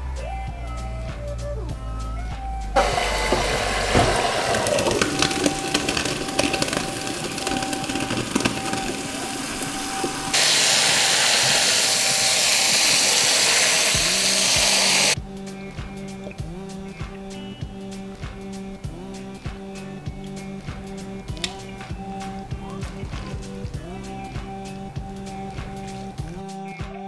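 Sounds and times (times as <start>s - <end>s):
water pouring into metal strainer: 2.8s - 15.2s
running tap water: 2.8s - 26.4s.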